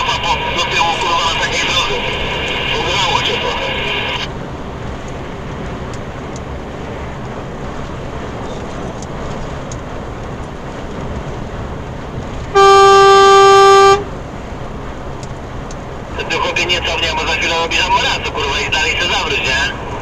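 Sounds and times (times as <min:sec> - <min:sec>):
road and engine noise in cab: 0:00.0 - 0:20.0
vehicle horn blast: 0:12.6 - 0:14.1.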